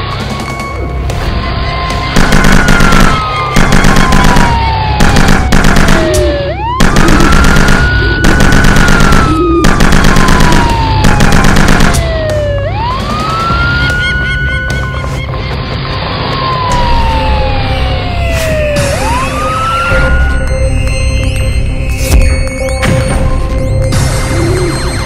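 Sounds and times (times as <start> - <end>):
police siren wailing: 1.5 - 20.8.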